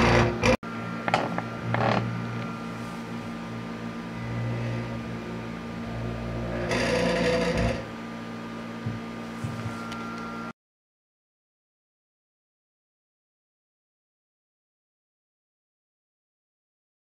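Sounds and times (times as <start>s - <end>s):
stepper motors buzzing: 0.0s - 8.0s.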